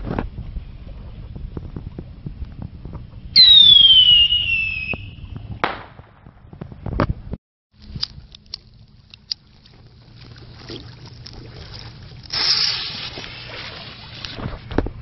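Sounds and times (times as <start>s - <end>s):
firework fuse fizzing hiss: 12.3s - 14.3s.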